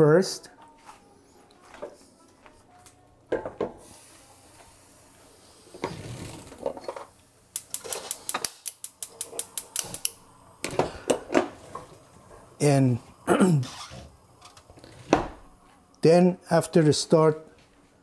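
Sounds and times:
gas stove igniter clicking: 7.5 - 11.5.

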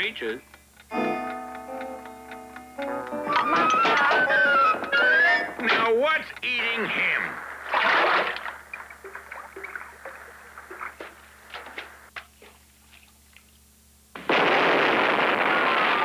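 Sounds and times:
clicks and knocks: 0.8 - 6.6
cartoon noise burst: 7.6 - 8.4, 14.4 - 16.0.

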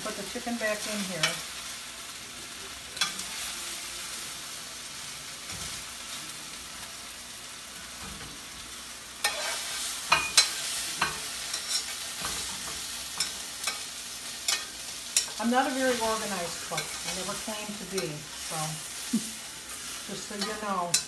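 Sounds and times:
chicken sizzling in a skillet: 0.0 - 21.0
metal spoon scraping a pan: 9.2 - 19.0, 19.7 - 21.0.

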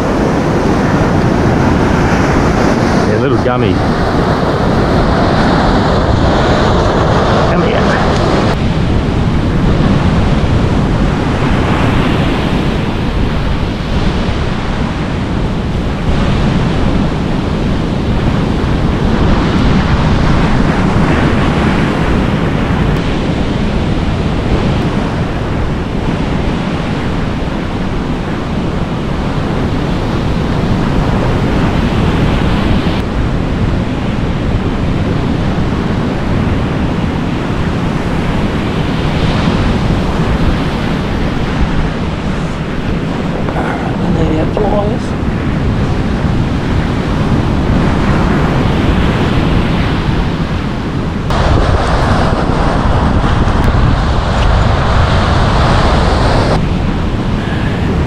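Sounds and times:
waves breaking on a beach: 0.0 - 58.0
wind buffeting microphone: 0.0 - 58.0.

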